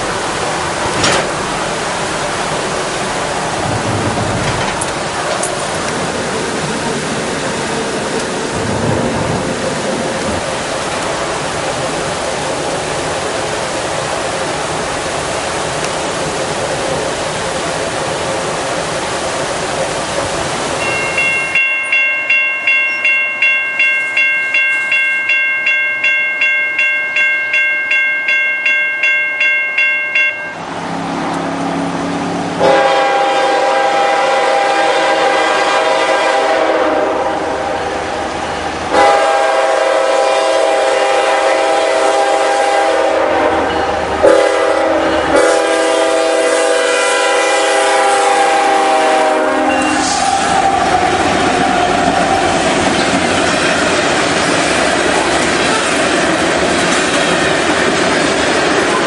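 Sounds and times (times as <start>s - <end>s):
road and rain noise: 0.0s - 24.5s, 30.5s - 59.0s
crossing bell ringing: 20.8s - 30.7s, 43.6s - 44.1s, 44.9s - 45.4s, 49.6s - 50.2s
locomotive air horn: 32.6s - 37.8s, 38.9s - 50.8s.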